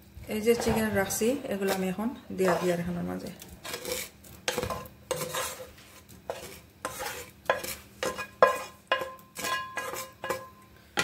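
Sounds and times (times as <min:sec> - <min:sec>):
scraping and knocking metal pan: 0:06.3 - 0:10.5.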